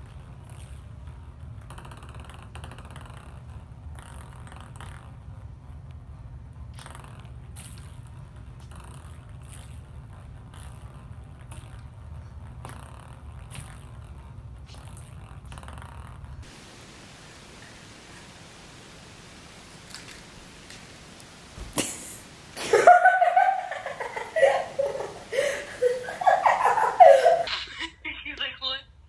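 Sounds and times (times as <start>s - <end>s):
ping-pong ball tapping and rolling: 0.0s - 16.5s
steady low hum: 0.0s - 29.0s.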